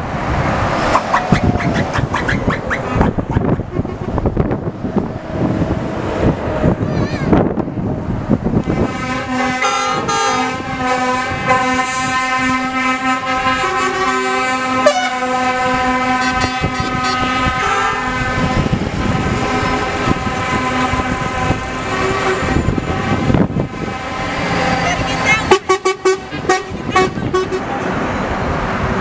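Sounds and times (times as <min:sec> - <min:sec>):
heavy trucks driving past: 0:00.0 - 0:29.0
truck air horn blast: 0:08.6 - 0:27.7
second horn tone: 0:08.7 - 0:18.7.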